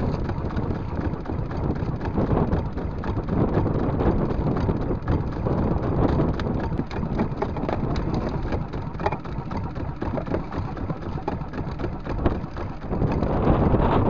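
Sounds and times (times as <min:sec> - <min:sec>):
waves slapping against boat: 0:00.0 - 0:14.0
wind buffeting microphone: 0:00.0 - 0:14.0
small knocks on boat: 0:06.1 - 0:13.2.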